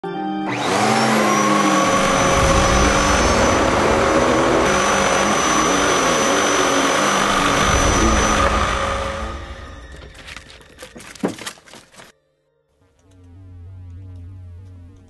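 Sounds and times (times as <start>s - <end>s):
vacuum cleaner running: 0.4s - 10.9s.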